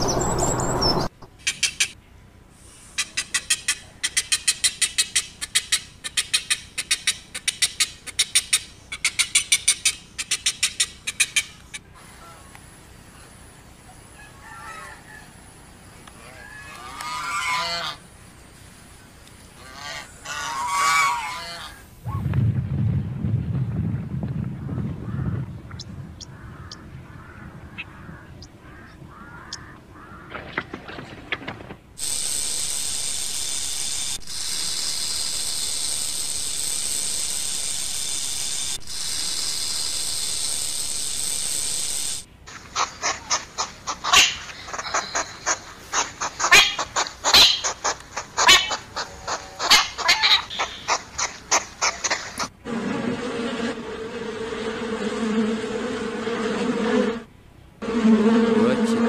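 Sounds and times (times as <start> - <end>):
hedgehog snuffling and huffing: 42.5 - 52.6.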